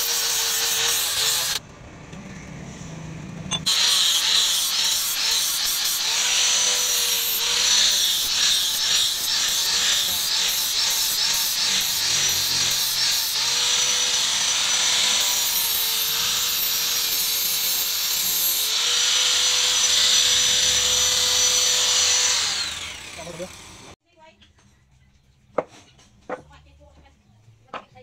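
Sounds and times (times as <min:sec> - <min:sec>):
angle grinder on steel: 0:00.0 - 0:01.6, 0:03.5 - 0:24.0.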